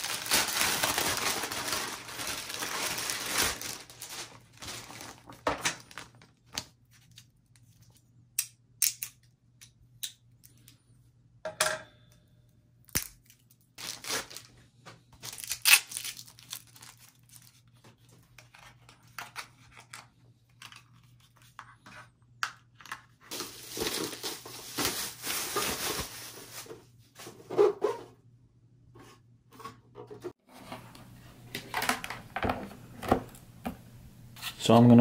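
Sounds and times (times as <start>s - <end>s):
plastic wrap crinkling: 0.0s - 7.3s, 13.2s - 14.6s, 15.2s - 17.8s, 23.3s - 26.8s.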